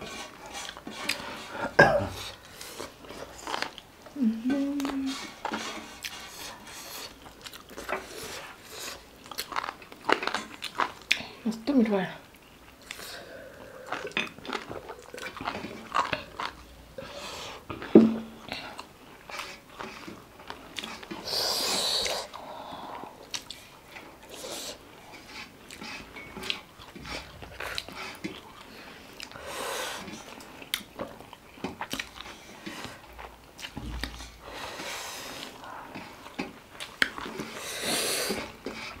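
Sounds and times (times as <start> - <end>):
people chewing and crunching: 0.0 - 39.0.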